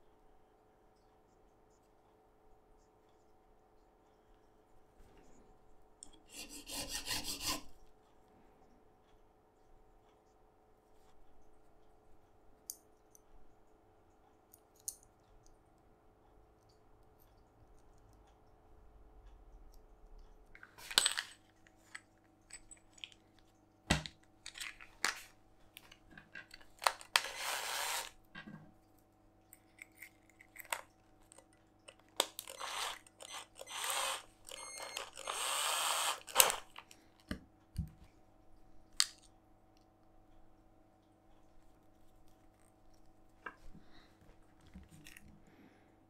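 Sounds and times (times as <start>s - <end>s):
faint low hum: 0.0s - 27.1s
scraping strokes: 27.2s - 28.2s.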